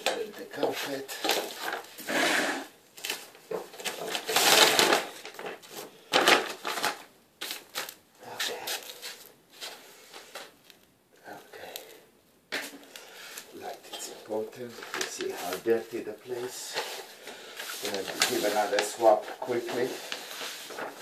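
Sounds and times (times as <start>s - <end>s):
garbage crumpling and rustling: 0.0s - 2.1s, 3.0s - 9.3s, 13.6s - 21.0s.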